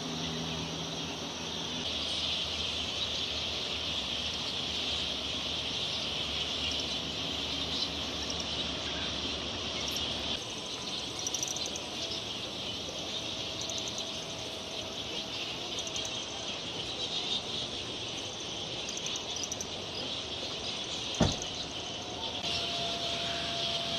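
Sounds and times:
high-pitched insect chorus: 0:00.0 - 0:23.9.

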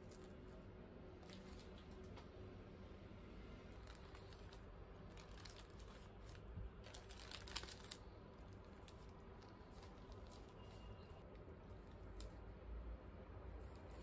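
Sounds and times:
paper wrapper crinkling: 0:00.0 - 0:00.6, 0:01.2 - 0:02.1, 0:03.7 - 0:12.4
room hum: 0:00.0 - 0:14.0.

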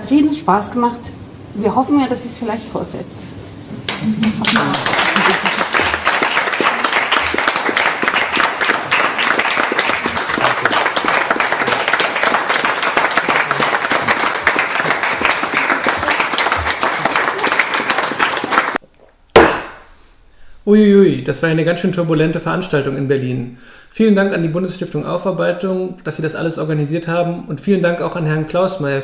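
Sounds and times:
audience applauding: 0:03.9 - 0:18.8.

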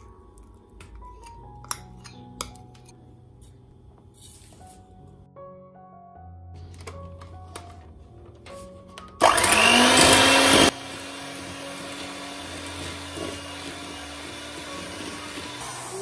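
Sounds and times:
electric hand mixer whining: 0:09.2 - 0:16.0.

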